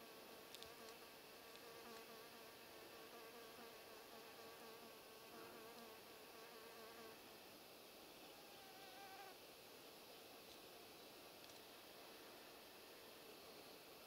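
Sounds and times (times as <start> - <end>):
flying insect buzzing: 0.2 - 7.2, 8.3 - 9.4.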